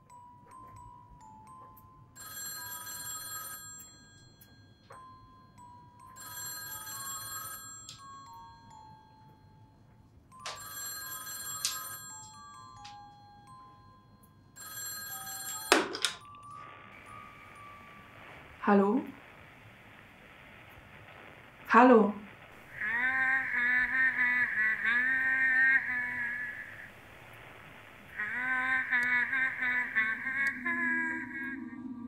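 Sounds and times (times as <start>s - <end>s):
soft chiming melody: 0.0s - 3.2s, 4.0s - 18.4s
telephone bell ringing: 0.0s - 19.3s
telephone handset clatter: 15.3s - 16.3s.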